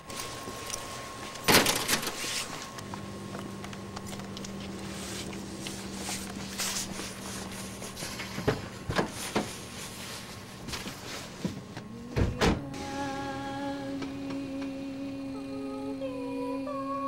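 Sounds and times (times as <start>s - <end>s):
hummed background music note: 9.5s - 17.0s.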